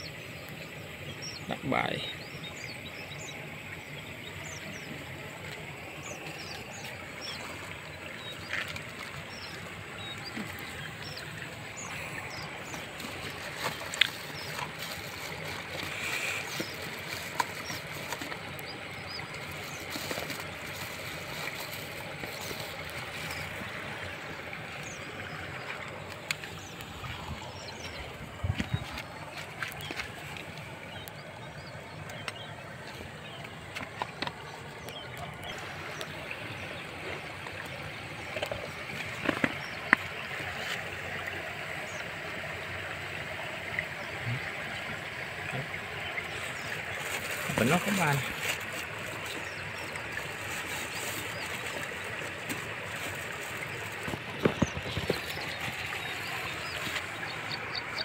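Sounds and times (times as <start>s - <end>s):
outdoor background noise: 0.0s - 58.0s
plastic bag and spoon rustles: 12.8s - 18.6s, 19.4s - 23.5s, 46.9s - 57.0s.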